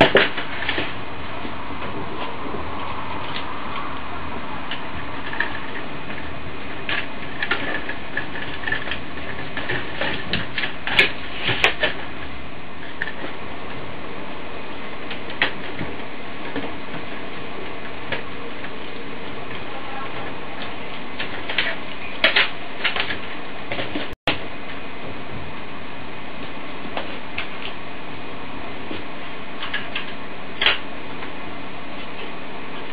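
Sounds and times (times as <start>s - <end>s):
plastic parts clicking and knocking: 4.7s - 12.1s.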